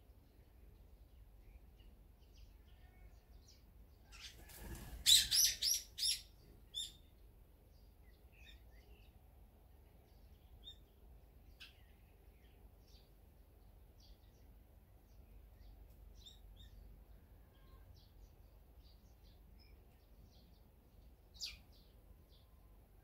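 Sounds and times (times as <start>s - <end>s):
rustle: 0.0s - 23.0s
faint small bird chirps: 0.2s - 9.2s, 10.0s - 13.2s, 13.9s - 23.0s
songbird shrill calls: 5.1s - 7.0s.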